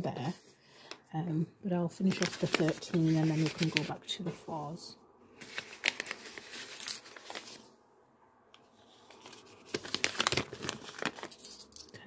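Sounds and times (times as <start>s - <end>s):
paper rustling and crinkling: 2.1s - 4.0s, 5.4s - 7.7s, 8.7s - 11.4s
coins clinking: 6.5s - 7.2s, 11.1s - 12.0s.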